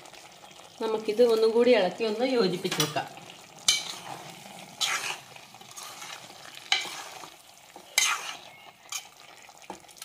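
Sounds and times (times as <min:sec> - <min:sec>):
metal spoon scraping pot: 0:03.6 - 0:09.2.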